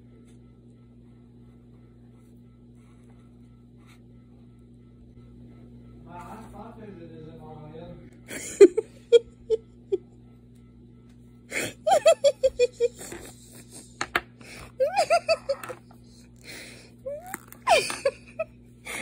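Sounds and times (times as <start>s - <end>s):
person laughing: 8.3s - 10.2s, 11.5s - 19.0s.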